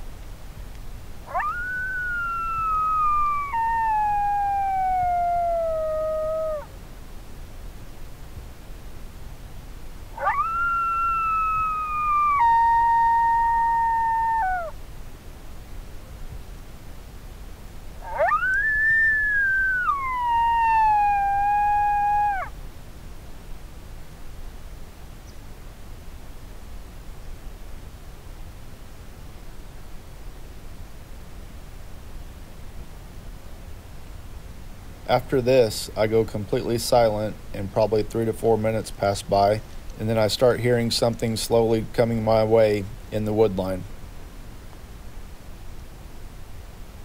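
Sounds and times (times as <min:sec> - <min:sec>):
recorded coyote howl: 0:01.2 - 0:06.8, 0:10.1 - 0:14.8, 0:18.0 - 0:22.6.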